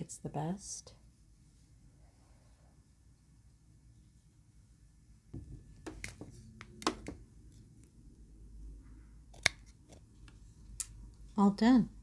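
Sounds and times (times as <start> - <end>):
handling clicks and taps: 5.4 - 7.2.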